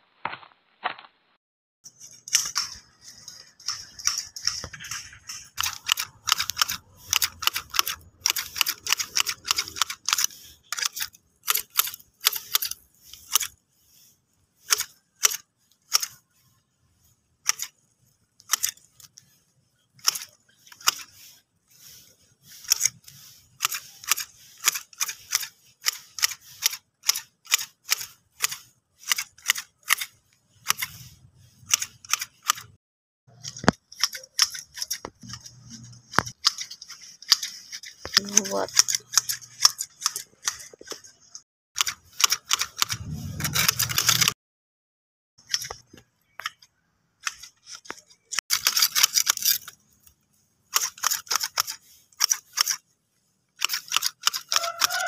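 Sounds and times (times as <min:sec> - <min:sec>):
shears snipping grass: 0:01.9 - 0:32.7, 0:33.4 - 0:44.4, 0:50.8 - 0:52.8, 0:53.6 - 0:55.0.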